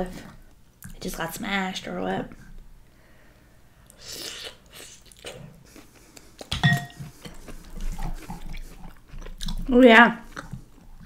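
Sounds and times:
wet chewing and mouth clicks: 3.9 - 11.0
clink against glass bowl: 6.6 - 7.0.

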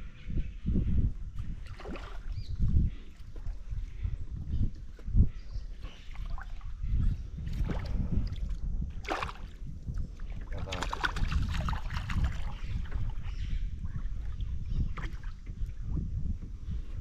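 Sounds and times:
wind rumbling on microphone: 0.0 - 17.0
water splashing and sloshing: 1.4 - 4.0, 4.8 - 6.8, 7.4 - 13.3, 14.0 - 15.9.

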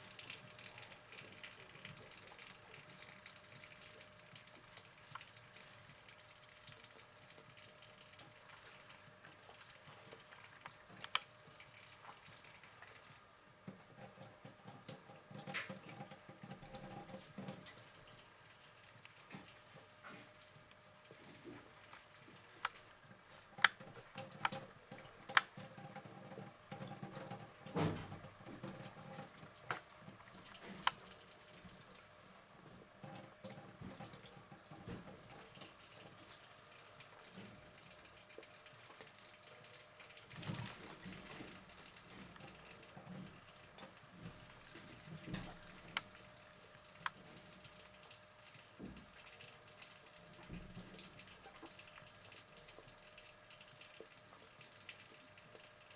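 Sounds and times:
tap trickling into sink: 48.7 - 49.2.

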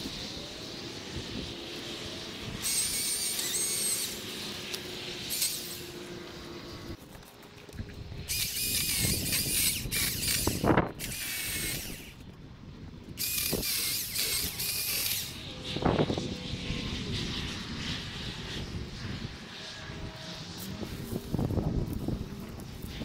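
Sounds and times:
battery chainsaw cutting wood: 1.6 - 6.1, 8.3 - 12.2, 13.2 - 15.5.

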